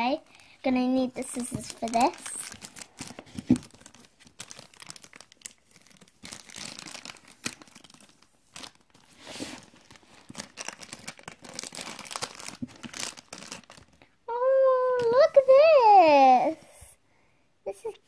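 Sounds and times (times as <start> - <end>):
wrapper and paper crinkling and tearing: 0.1 - 14.0, 14.8 - 15.6.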